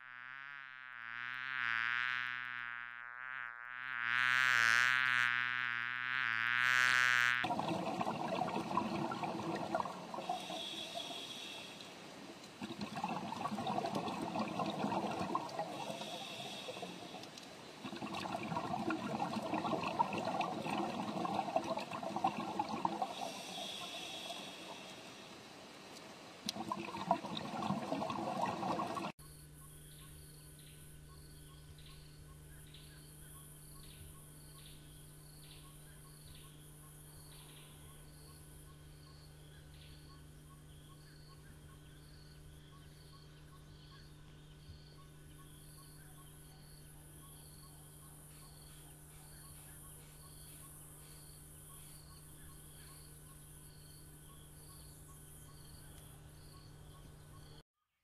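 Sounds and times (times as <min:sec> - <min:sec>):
insect chirping: 0:00.0 - 0:26.4, 0:28.2 - 0:57.6
rushing bubbling water: 0:07.4 - 0:25.3, 0:26.4 - 0:29.1.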